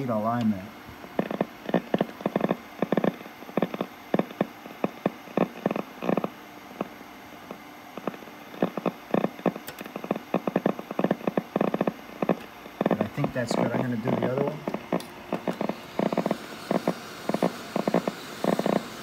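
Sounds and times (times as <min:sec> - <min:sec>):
garbled radio audio: 0:08.0 - 0:18.8.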